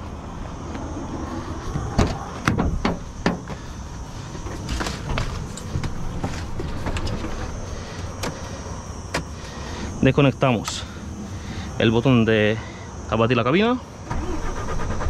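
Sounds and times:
low steady rumble: 0:00.0 - 0:15.0
truck cab door clunks: 0:01.7 - 0:03.6.

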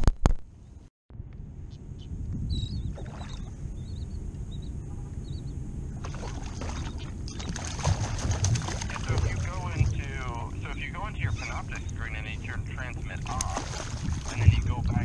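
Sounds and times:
wind rumble on microphone: 0:00.0 - 0:15.0
water lapping against kayak hull: 0:02.9 - 0:03.6, 0:05.9 - 0:15.0.

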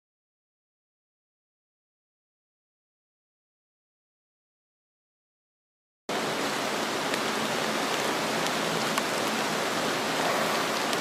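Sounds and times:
heavy rain hissing: 0:06.1 - 0:11.0.

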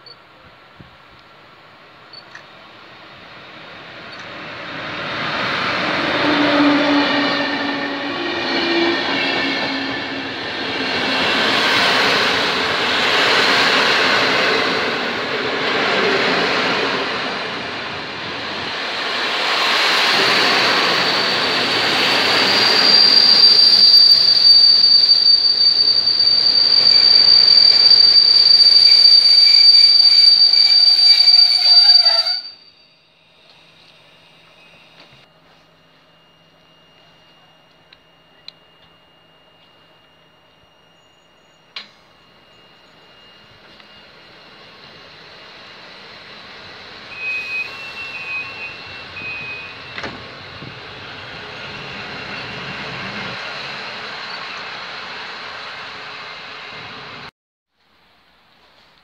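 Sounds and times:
train wheels rumbling past: 0:02.9 - 0:32.5
high-pitched wheel squeal: 0:05.5 - 0:18.3, 0:19.0 - 0:32.8, 0:47.0 - 0:53.6.

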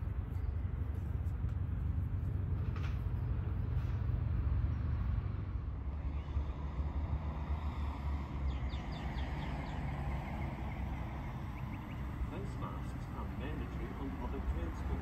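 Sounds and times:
train rumbling: 0:00.0 - 0:08.1.

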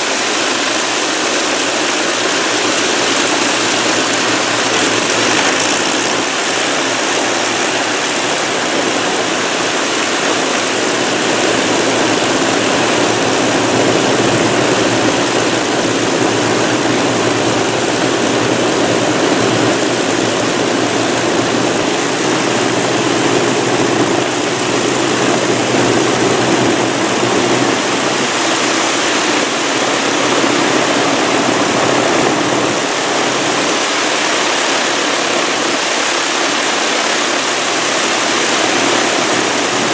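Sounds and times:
propeller aircraft engines droning: 0:00.0 - 0:39.9.

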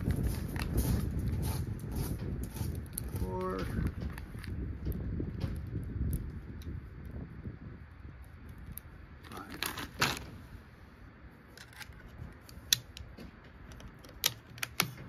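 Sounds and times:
rifle loading clicks and rattles: 0:08.6 - 0:10.3, 0:11.5 - 0:15.0.

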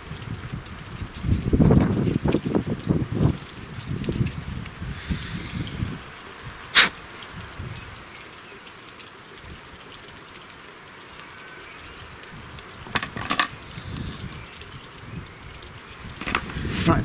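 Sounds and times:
faint steady hiss: 0:02.5 - 0:17.0
sharp metal clinks: 0:12.9 - 0:13.6.

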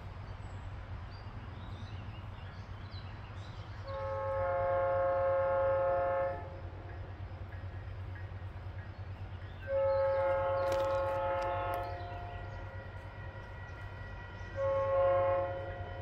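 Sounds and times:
low rumble of diesel engines: 0:00.0 - 0:16.0
locomotive air horn blast: 0:03.8 - 0:06.5, 0:09.6 - 0:16.0.

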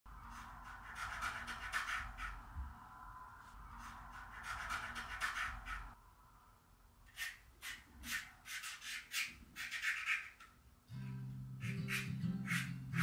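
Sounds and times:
drawing tool scratching paper: 0:00.3 - 0:02.4, 0:03.8 - 0:06.0, 0:07.1 - 0:10.4, 0:11.6 - 0:13.0.

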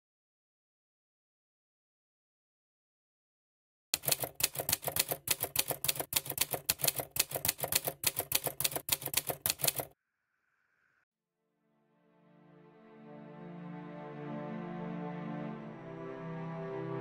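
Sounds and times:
typewriter keystroke clacks: 0:04.0 - 0:09.9.

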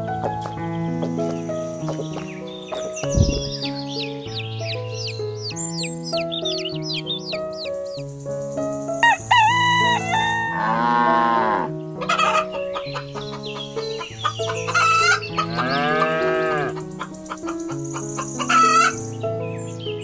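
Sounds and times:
light background music: 0:00.0 - 0:20.0
rooster crowing: 0:09.0 - 0:12.5.

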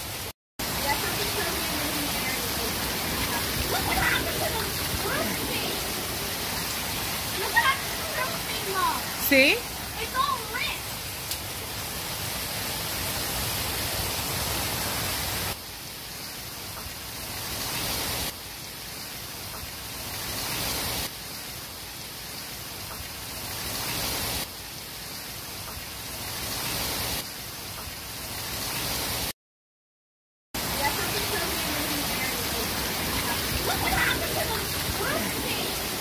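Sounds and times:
heavy rain and hail falling: 0:00.0 - 0:29.3, 0:30.6 - 0:36.0.

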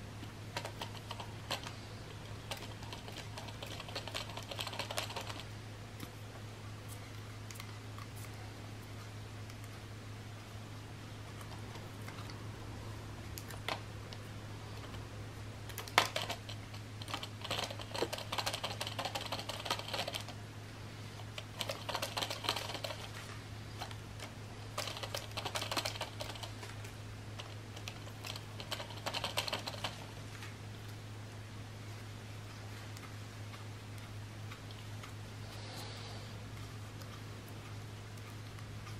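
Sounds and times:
steady low hum: 0:00.0 - 0:38.9
fast clicking and rustling: 0:00.2 - 0:05.6, 0:15.7 - 0:20.4, 0:21.2 - 0:30.6.

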